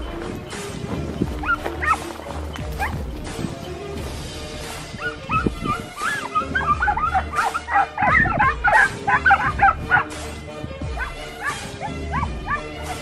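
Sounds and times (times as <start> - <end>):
hounds baying and yelping: 1.2 - 3.2, 4.6 - 13.0.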